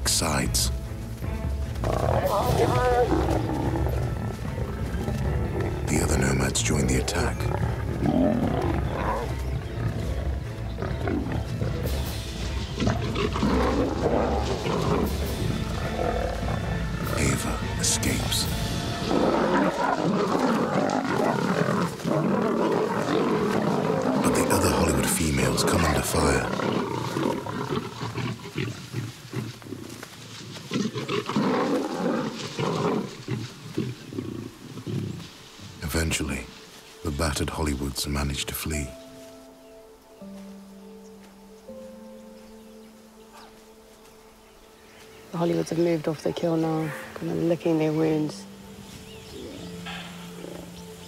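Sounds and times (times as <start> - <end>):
low music score: 0.0 - 51.0
lions snarling and growling: 1.8 - 35.8, 48.9 - 51.0.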